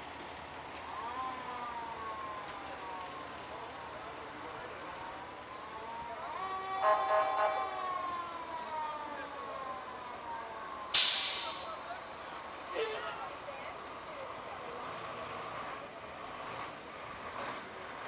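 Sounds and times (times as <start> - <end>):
fire engine siren wailing: 0.7 - 12.9.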